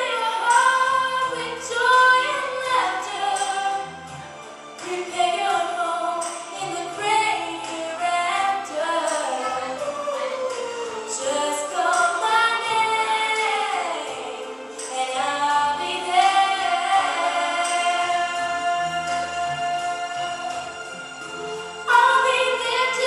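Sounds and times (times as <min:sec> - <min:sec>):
song with singing voices: 0:00.0 - 0:23.0.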